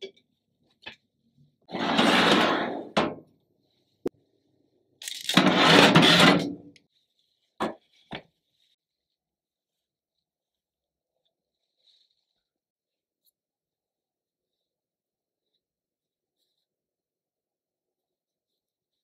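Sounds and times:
metal baking tray scraping on oven rack: 0:01.7 - 0:03.0, 0:05.4 - 0:06.6.

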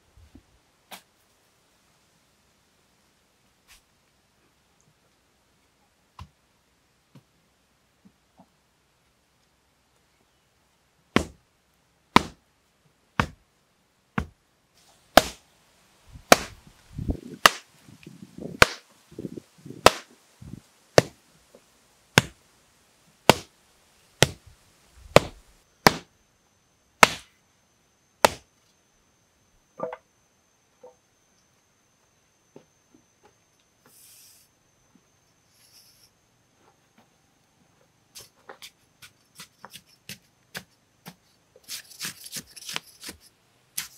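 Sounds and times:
wooden tamper pounding earth: 0:16.2 - 0:17.6.

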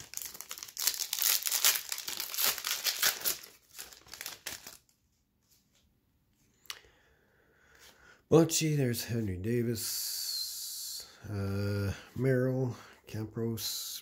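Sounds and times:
plastic wrapper crinkling: 0:00.0 - 0:05.0.

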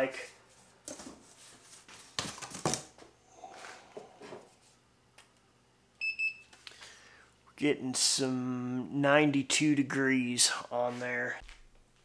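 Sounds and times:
thermometer beep: 0:06.0 - 0:06.5.

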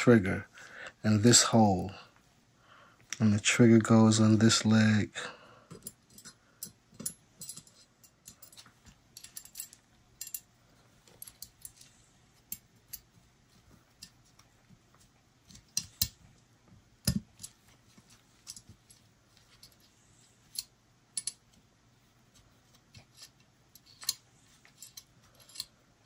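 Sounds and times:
small steel parts clicking: 0:05.7 - 0:13.1, 0:18.4 - 0:21.6, 0:22.9 - 0:25.8.

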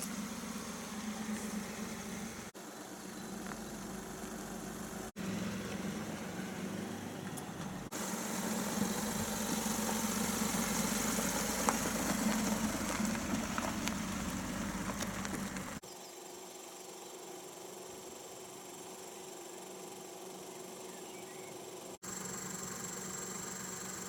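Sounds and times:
car engine running at low revs: 0:00.0 - 0:15.8
tyres on gravel: 0:00.0 - 0:15.8.

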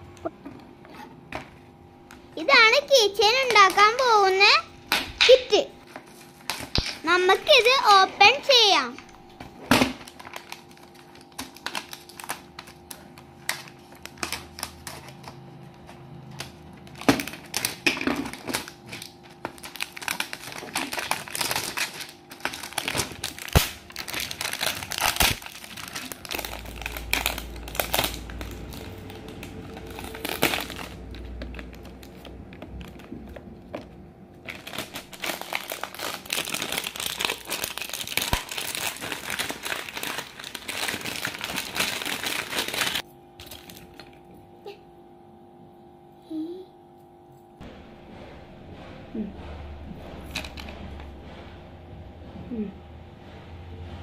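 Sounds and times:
plastic shrink-wrap crinkling: 0:05.3 - 0:09.0, 0:09.7 - 0:44.1
scissors cutting plastic: 0:09.7 - 0:44.1.

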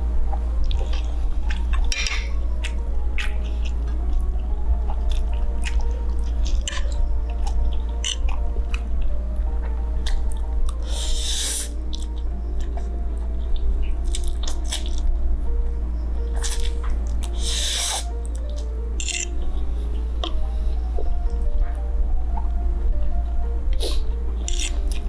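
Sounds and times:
background music: 0:00.0 - 0:25.0
person chewing noodles: 0:00.6 - 0:09.1, 0:10.0 - 0:12.9, 0:13.5 - 0:15.1, 0:16.4 - 0:19.5, 0:23.9 - 0:25.0.

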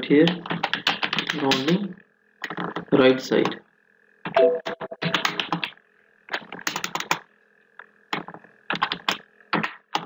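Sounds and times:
keyboard typing: 0:00.3 - 0:01.8, 0:04.3 - 0:07.2, 0:08.1 - 0:10.0.

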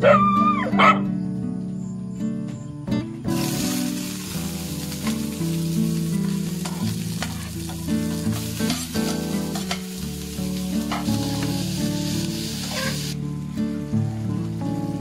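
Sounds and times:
food sizzling in a pan: 0:03.3 - 0:13.2
utensil clicking against pan: 0:08.6 - 0:10.0.

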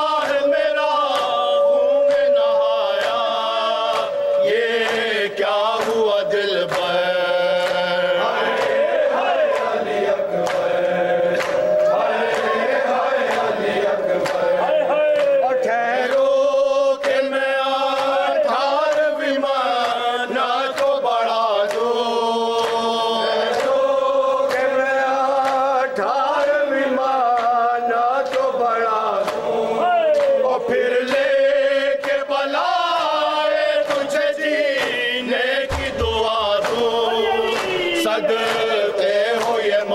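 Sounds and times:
men chanting together: 0:00.0 - 0:39.9
hands slapping chests: 0:10.4 - 0:10.7, 0:11.3 - 0:12.5, 0:35.7 - 0:38.7.

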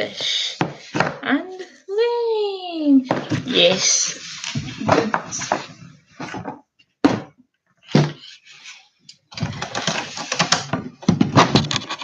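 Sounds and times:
rustling and crackling: 0:03.0 - 0:06.7, 0:07.8 - 0:12.0.

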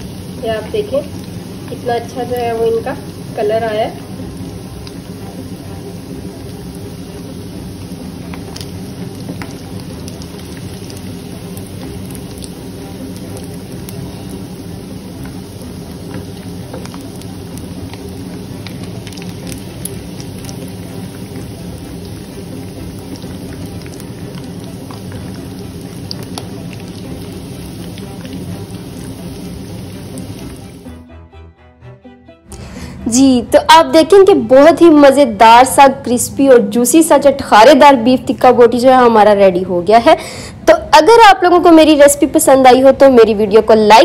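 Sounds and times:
meat sizzling in hot oil: 0:00.0 - 0:30.9
steady low hum: 0:00.0 - 0:31.0.

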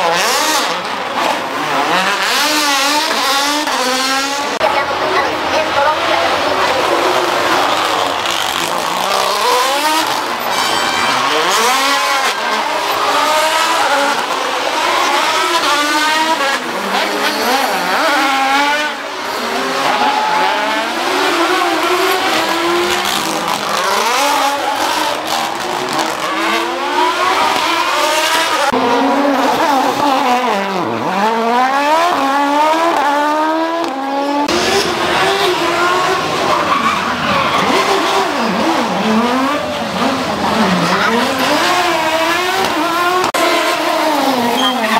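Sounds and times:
rally car engines revving: 0:00.0 - 0:44.9.

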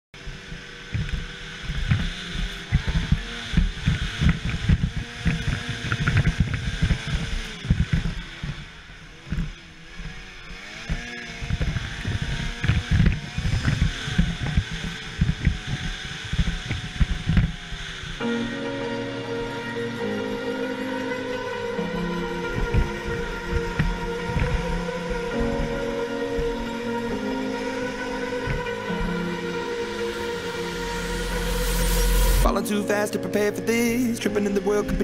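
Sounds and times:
snowmobile engine revving: 0:00.2 - 0:33.4
wind buffeting on microphone: 0:10.9 - 0:18.3
music: 0:18.2 - 0:35.0.

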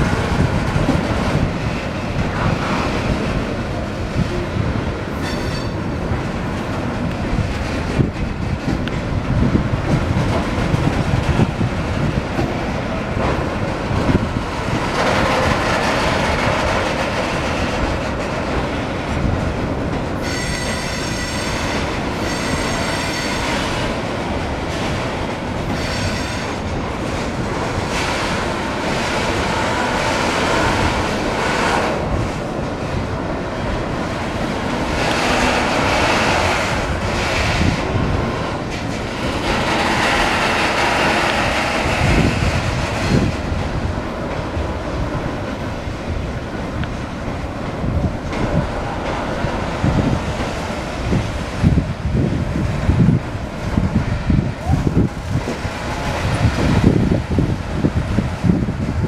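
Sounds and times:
freight train wheels rumbling: 0:00.0 - 0:59.0
high-pitched wheel squeal: 0:05.2 - 0:05.8, 0:20.2 - 0:23.5.

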